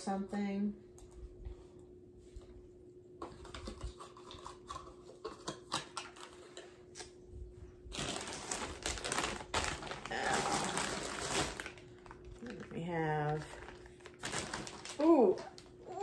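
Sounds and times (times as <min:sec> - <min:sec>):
plastic crinkling: 0:07.9 - 0:16.0.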